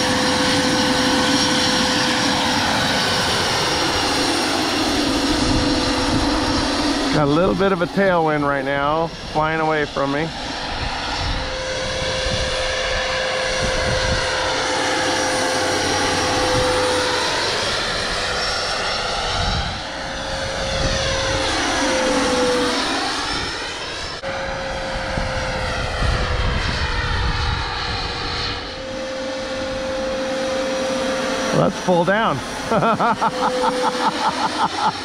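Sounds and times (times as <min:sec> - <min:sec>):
model helicopter rotor whine: 0:00.0 - 0:35.0
wind rumble on microphone: 0:04.8 - 0:30.0.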